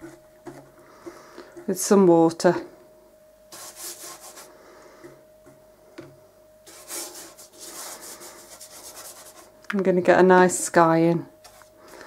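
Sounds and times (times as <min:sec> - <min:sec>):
brush swishing on wet paper: 0:03.5 - 0:04.5, 0:06.7 - 0:09.5.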